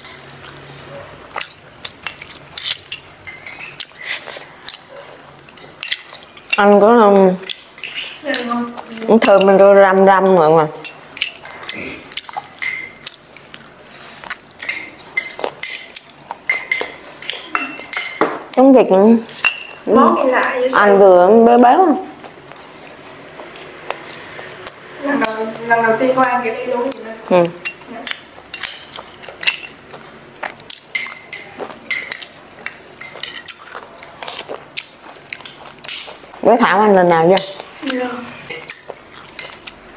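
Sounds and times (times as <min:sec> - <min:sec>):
spoons clinking on ceramic bowls: 0:02.6 - 0:09.6, 0:10.8 - 0:13.2, 0:14.6 - 0:18.4, 0:19.3 - 0:19.8, 0:27.6 - 0:29.8, 0:30.9 - 0:33.6.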